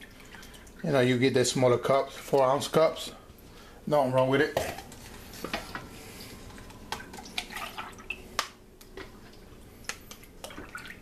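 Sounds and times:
dripping: 0.0s - 1.1s, 6.4s - 11.0s
plastic cups clicking and tapping: 4.2s - 9.2s, 9.9s - 11.0s
milk pouring into cup: 4.8s - 8.3s.

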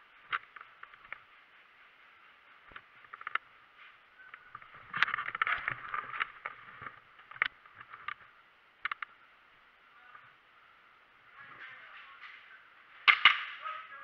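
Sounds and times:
sharp clicks and knocks: 0.3s - 1.3s, 2.6s - 9.2s, 13.0s - 13.6s.

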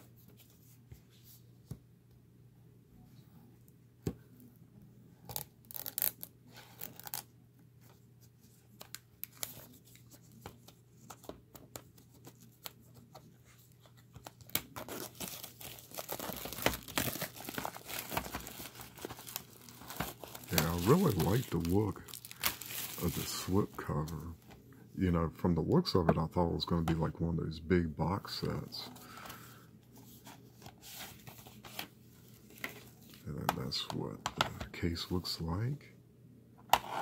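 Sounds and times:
shrink wrap crackling: 14.4s - 23.8s.

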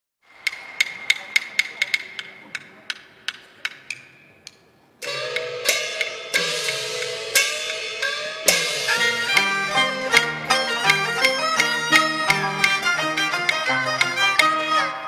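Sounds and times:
small cymbals: 0.3s - 14.9s.

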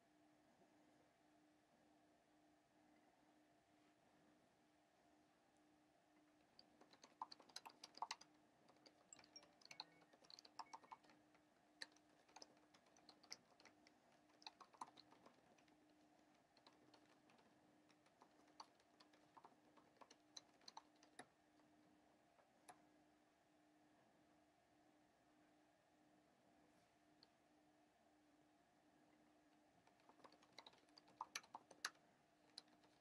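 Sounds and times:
faint low hum: 0.0s - 33.0s
faint irregular clicking: 6.4s - 21.8s, 29.8s - 33.0s.

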